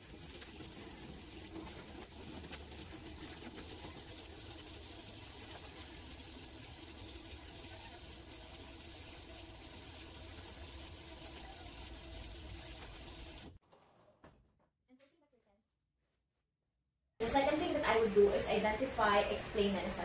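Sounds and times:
hands being washed: 0.0 - 13.6.

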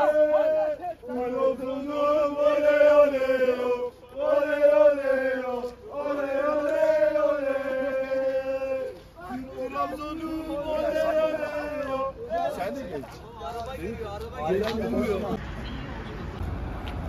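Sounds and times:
football supporters chanting: 0.0 - 13.1.

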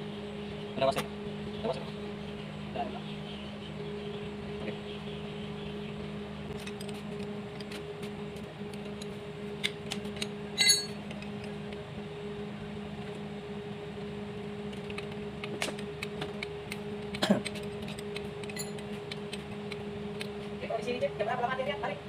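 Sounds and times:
steady low hum: 0.0 - 22.0
ringing metal clink: 10.6 - 11.0, 18.6 - 18.8
wrench clinking on metal: 10.6 - 11.0, 18.5 - 18.8.

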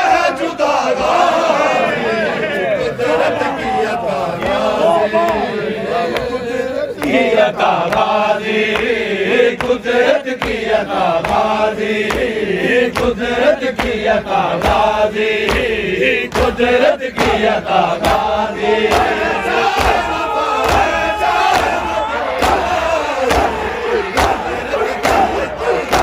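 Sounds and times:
men chanting in unison: 0.0 - 26.0
hands slapping chests: 7.0 - 9.0, 9.6 - 26.0.

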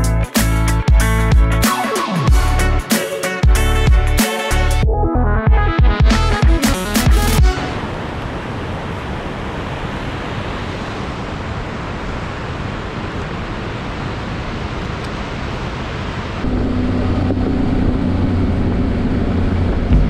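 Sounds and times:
wind on microphone: 15.7 - 20.0
motorcycle engine hum: 16.4 - 20.0.

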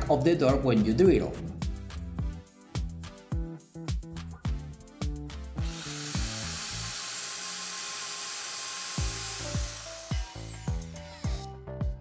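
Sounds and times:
background music with beat: 0.0 - 6.3, 9.0 - 12.0
electric drill boring: 5.6 - 11.5.

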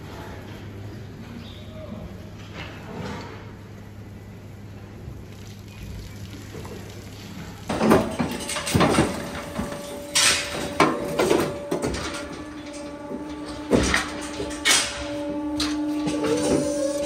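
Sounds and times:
steady machine hum: 7.4 - 17.0
metal chute clanking: 7.7 - 17.0.

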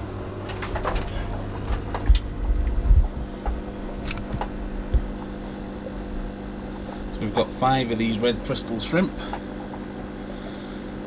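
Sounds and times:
low electrical hum: 0.0 - 11.0
low thumps and knocks: 0.5 - 5.4.

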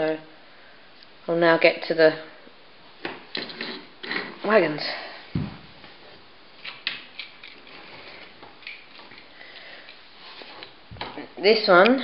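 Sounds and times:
model wagon thumping on floor: 5.4 - 5.8.

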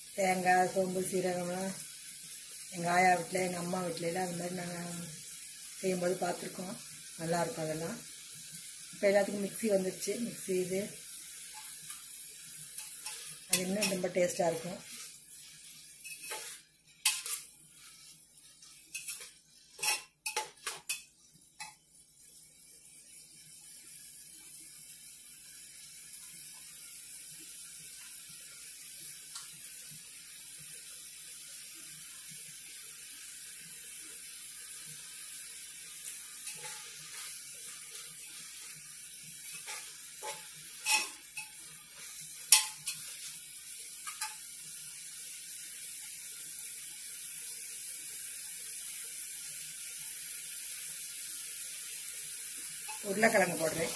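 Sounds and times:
vegetables sizzling: 0.0 - 53.9
spoon scraping metal pot: 12.8 - 15.1, 16.0 - 21.0, 36.4 - 37.3, 39.5 - 41.6.

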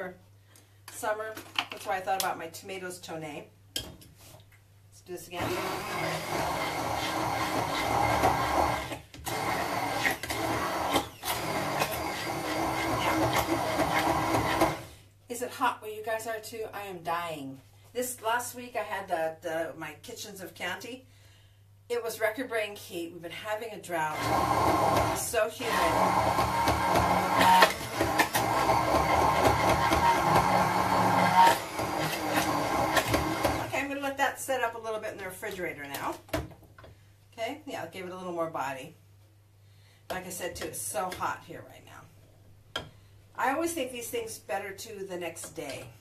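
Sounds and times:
blender motor running: 5.4 - 14.9, 24.1 - 33.7.

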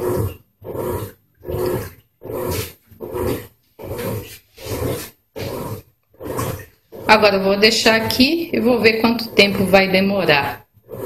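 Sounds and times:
washing machine agitator churning: 0.0 - 11.0.

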